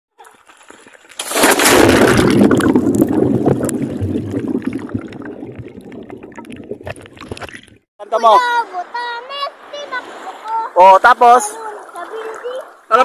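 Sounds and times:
underwater rushing and bubbling: 0.7 - 7.9
camera splashing into water: 1.0 - 7.8.

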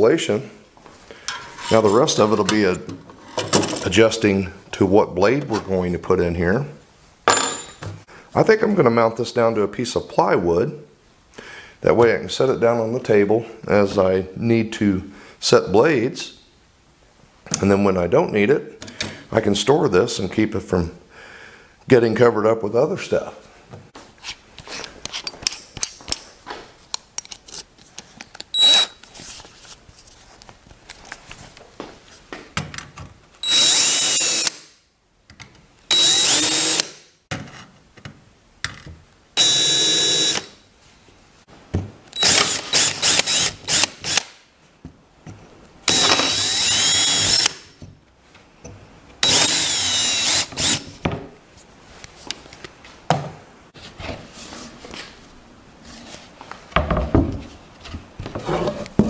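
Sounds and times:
cordless drill boring into wood: 28.6 - 28.9, 33.4 - 34.6, 35.9 - 36.9, 39.4 - 40.5, 42.2 - 44.2, 45.9 - 47.6, 49.2 - 50.9.

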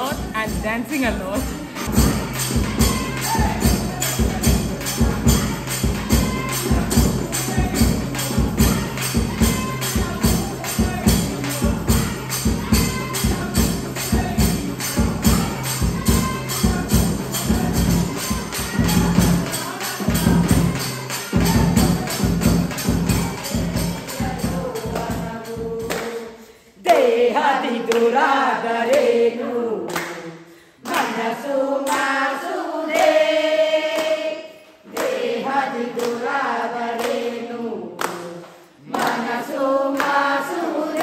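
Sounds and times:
hand-beaten drums: 0.0 - 26.0
jingling percussion: 0.0 - 26.8.

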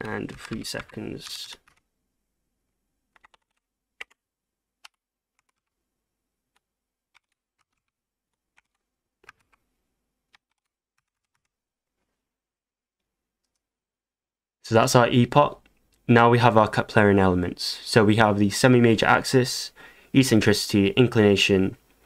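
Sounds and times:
faint keyboard typing: 0.0 - 1.8, 3.1 - 4.2, 4.8 - 5.7, 6.5 - 9.7, 10.3 - 11.6.

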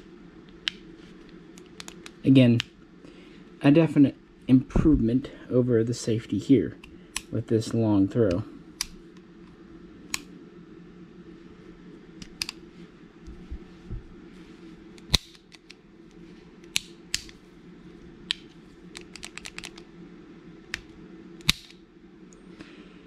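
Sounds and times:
steady low hum: 0.0 - 23.0
pistol controls clicking: 18.9 - 19.8.

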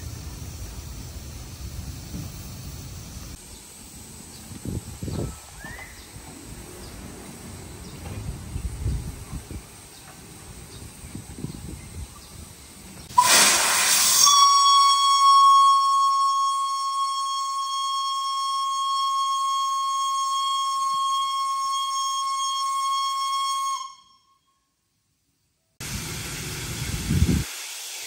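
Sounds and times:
rush of steam: 0.0 - 18.6, 25.8 - 28.0
steam whistle: 13.1 - 24.5.

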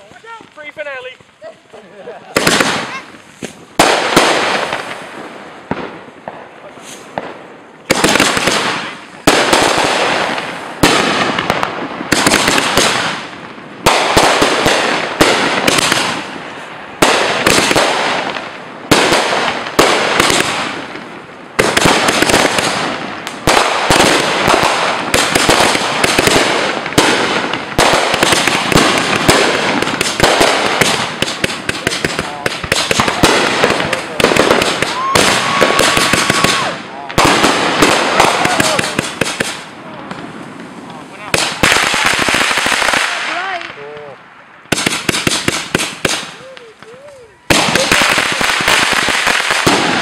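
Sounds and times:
fireworks bangs: 0.0 - 50.0
fireworks crackle: 0.0 - 50.0.

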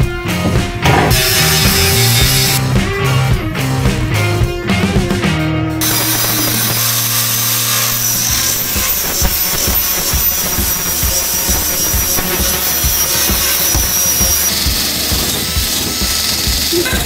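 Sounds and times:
angle grinder whine: 0.8 - 2.6, 5.8 - 17.0
disc grinding metal: 1.1 - 2.6, 5.8 - 17.0.

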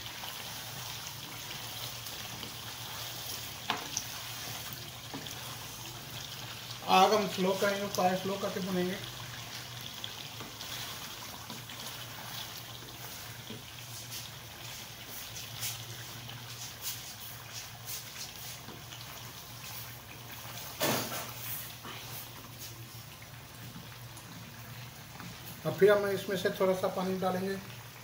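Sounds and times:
gravy simmering with small pops: 0.0 - 28.0
wooden spatula scraping pan: 10.4 - 18.8.

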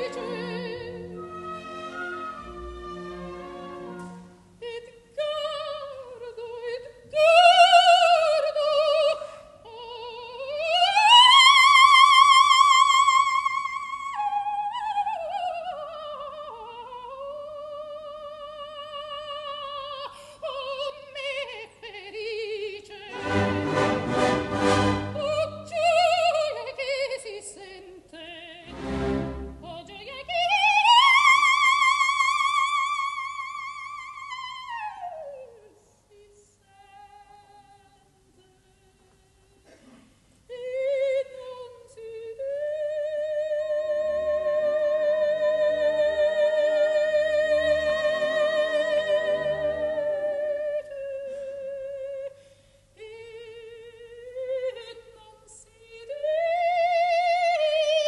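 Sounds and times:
orchestra: 0.0 - 8.8, 22.9 - 27.1, 28.5 - 32.8, 43.9 - 50.4
soprano singing with vibrato: 0.0 - 24.0, 24.9 - 39.6, 40.5 - 52.4, 53.0 - 58.0.

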